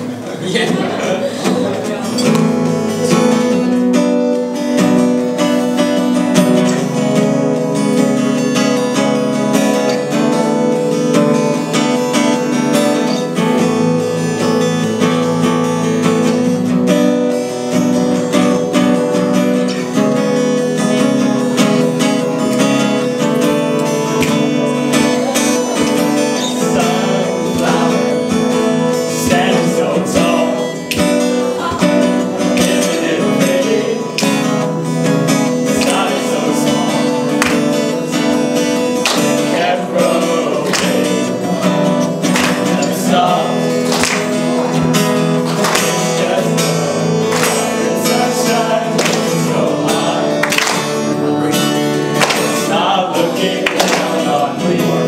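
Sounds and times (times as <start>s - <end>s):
acoustic guitar strumming: 0.0s - 55.0s
group of men singing: 20.7s - 55.0s.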